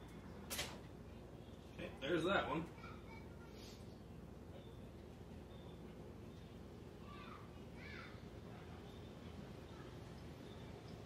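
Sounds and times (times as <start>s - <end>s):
faint low hum: 0.0s - 11.0s
faint high chirp: 4.4s - 6.7s, 8.1s - 11.0s.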